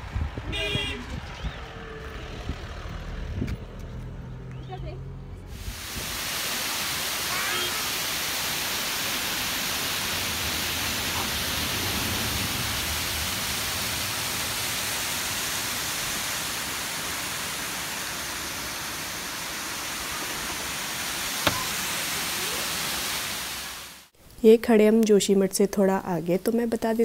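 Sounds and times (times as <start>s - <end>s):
waterfall roaring: 5.6s - 24.1s.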